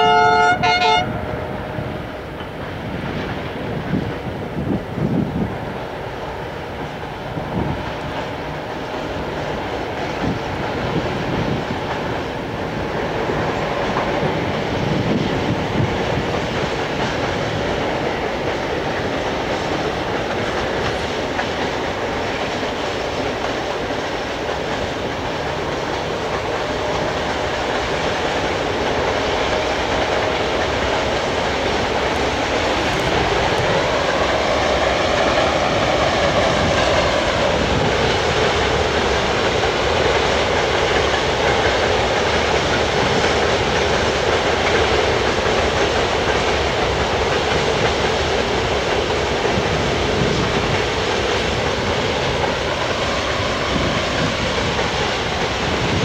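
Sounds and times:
train wheels clickety-clack: 0:00.0 - 0:56.0.

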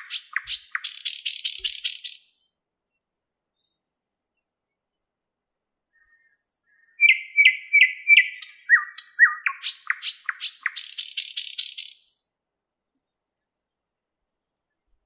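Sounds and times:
bird singing: 0:00.0 - 0:02.7, 0:03.5 - 0:12.2.

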